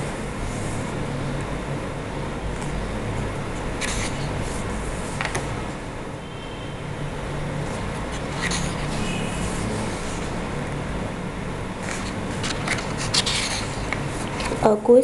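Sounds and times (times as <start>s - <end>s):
hand brushing paper: 3.7s - 5.4s, 8.0s - 10.4s, 11.8s - 14.6s
paper page turning: 3.8s - 5.4s, 7.7s - 10.4s, 11.8s - 14.6s.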